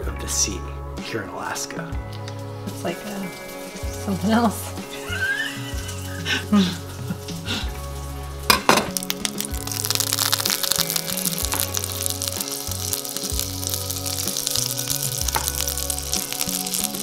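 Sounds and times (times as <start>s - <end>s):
background music: 0.0s - 17.0s
butter sizzling in a skillet: 2.4s - 17.0s.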